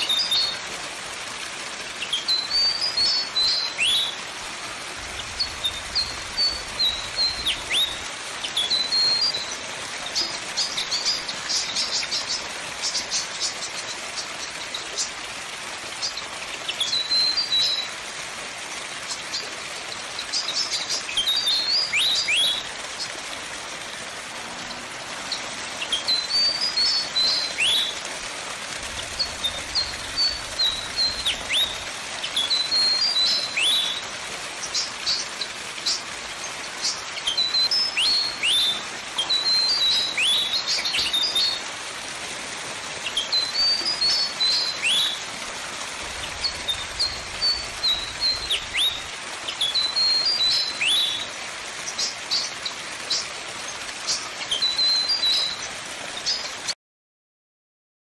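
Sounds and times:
bird chirping: 5.1s - 14.3s, 46.1s - 51.2s.

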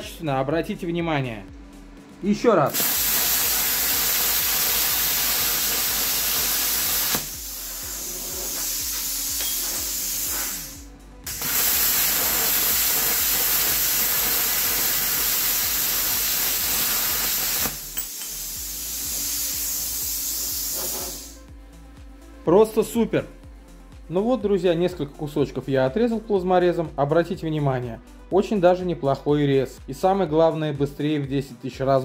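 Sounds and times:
plasma cutter hissing: 2.7s - 21.4s
cooling air hissing through torch: 2.7s - 21.5s.

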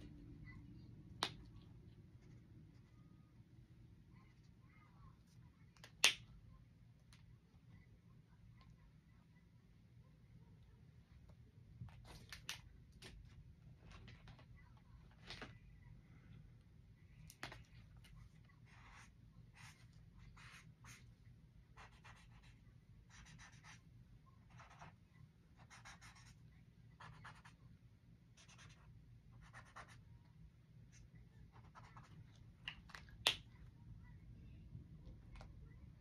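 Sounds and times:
marker scratching on paper: 18.5s - 21.1s, 21.8s - 23.8s, 24.4s - 25.0s, 25.6s - 26.4s, 27.0s - 27.6s, 28.4s - 30.0s, 30.9s - 32.2s.

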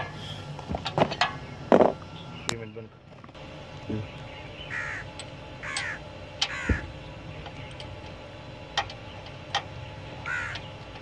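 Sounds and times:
crow cawing: 4.7s - 6.9s, 10.2s - 10.6s.

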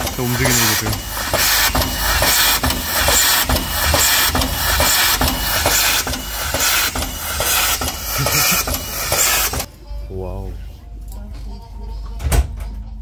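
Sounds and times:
train running: 0.0s - 9.7s.

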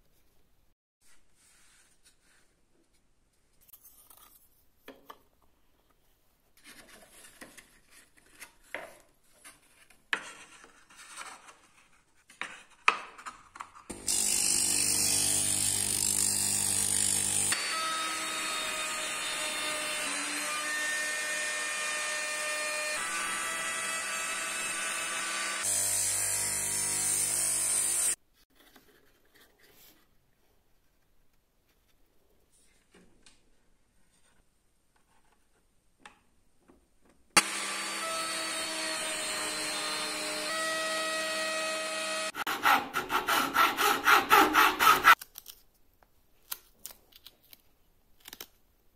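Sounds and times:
router cutting wood: 13.9s - 28.2s, 37.4s - 45.2s
wood router whining: 13.9s - 28.2s, 37.4s - 45.2s.

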